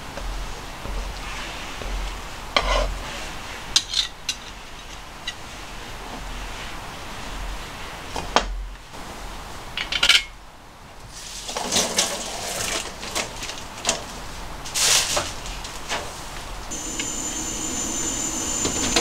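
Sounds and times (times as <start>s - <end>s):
rustling with light knocks: 0.0s - 8.8s, 11.0s - 16.6s.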